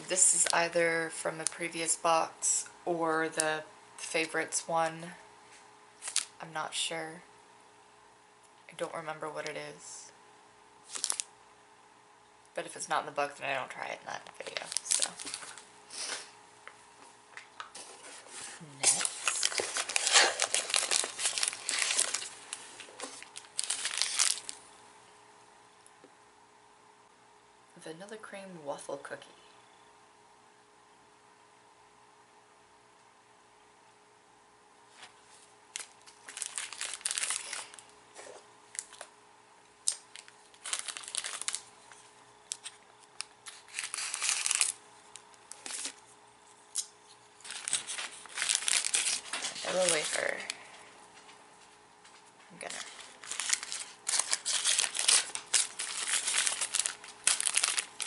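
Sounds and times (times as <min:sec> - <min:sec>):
plastic packaging crinkling: 0:06.0 - 0:06.4, 0:10.8 - 0:11.3, 0:14.3 - 0:16.3, 0:18.6 - 0:24.7, 0:35.7 - 0:39.1, 0:39.8 - 0:50.6, 0:52.6 - 0:58.0.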